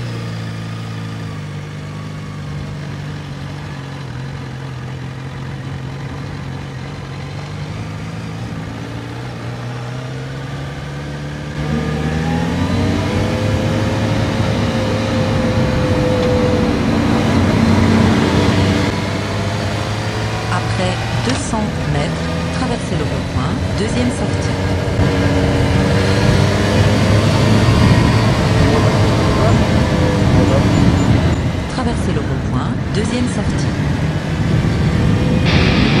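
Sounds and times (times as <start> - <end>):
motorcycle engine accelerating: 0.0 - 36.0.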